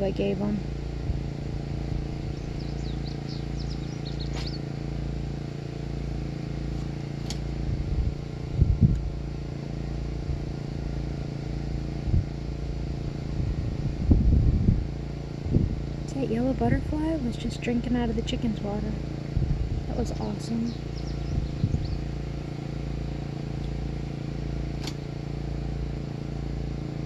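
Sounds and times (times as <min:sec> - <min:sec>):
wind buffeting microphone: 0:00.0 - 0:04.6, 0:07.6 - 0:09.5, 0:11.7 - 0:22.4
small bird chirping: 0:02.2 - 0:04.7, 0:20.0 - 0:22.2.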